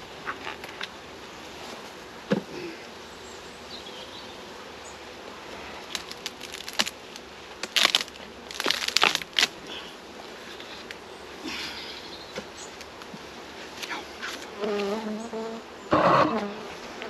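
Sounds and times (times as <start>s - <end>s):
honeybees humming: 0.0s - 17.0s
wood cracking and scraping: 5.9s - 7.0s, 7.6s - 9.6s.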